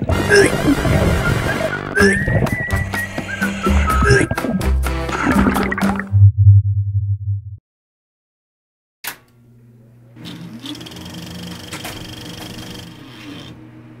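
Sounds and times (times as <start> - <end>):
held tones gliding up and down: 0.9 - 6.0.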